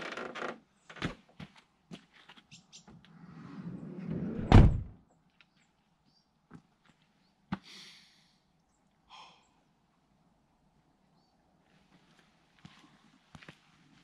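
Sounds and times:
sliding door rolling along track: 3.3s - 4.7s
sliding door slamming shut: 3.4s - 4.9s
thud: 4.4s - 4.9s.

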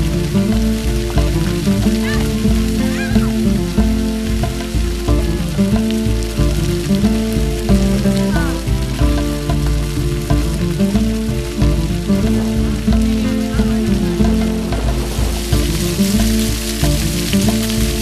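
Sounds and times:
background music: 0.0s - 18.0s
fountain water jets splashing: 0.0s - 18.0s.

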